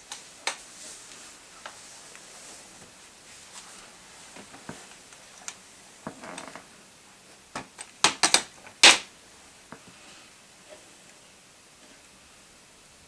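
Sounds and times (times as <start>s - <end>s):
short rustle: 0.1s - 6.7s
sharp clicks and knocks on wood: 7.6s - 9.1s.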